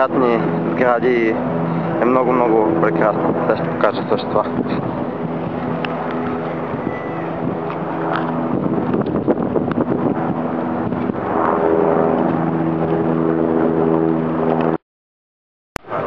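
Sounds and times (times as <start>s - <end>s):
motor engine running: 0.0s - 14.8s
wind noise on microphone: 0.0s - 14.8s.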